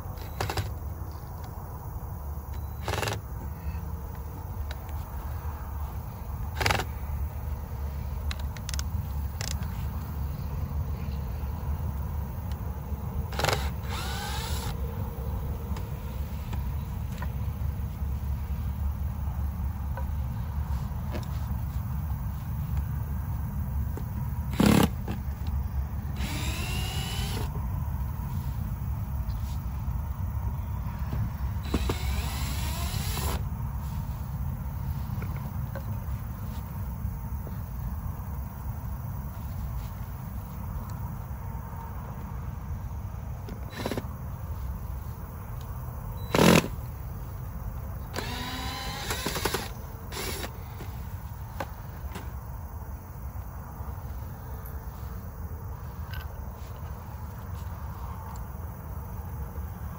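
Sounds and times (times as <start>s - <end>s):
cordless drill driving a screw: 13.3s - 14.8s, 26.2s - 27.5s, 31.6s - 33.4s, 48.2s - 50.5s.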